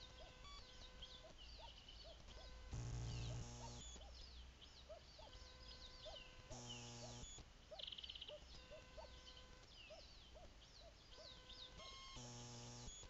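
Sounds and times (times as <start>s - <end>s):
bird trill: 0.0s - 13.0s
songbirds singing: 0.0s - 13.0s
low electrical buzz: 2.3s - 4.1s, 5.4s - 7.6s, 11.4s - 13.0s.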